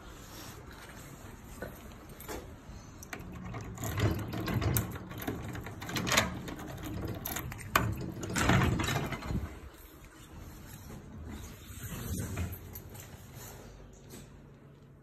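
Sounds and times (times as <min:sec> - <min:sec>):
door handle and latch rattling: 0:03.4 - 0:09.5.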